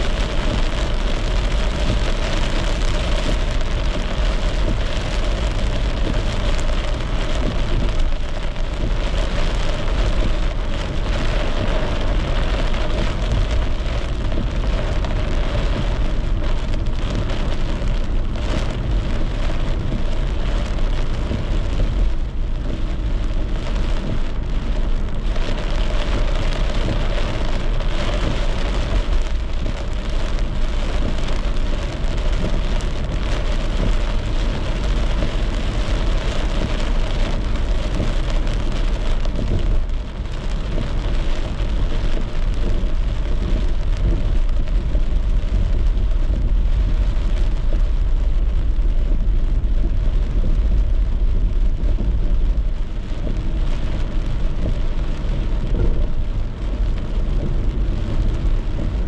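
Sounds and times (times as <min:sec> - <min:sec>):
low rumble: 0:00.0 - 0:59.0
rain on a car: 0:00.0 - 0:59.0
tyres on wet road: 0:00.0 - 0:59.0.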